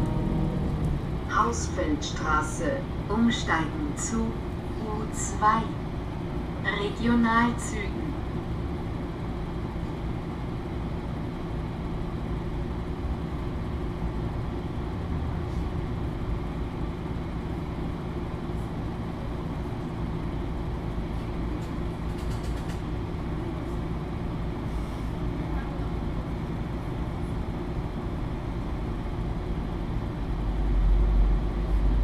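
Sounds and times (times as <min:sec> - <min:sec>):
bus diesel engine droning: 0:00.0 - 0:06.1.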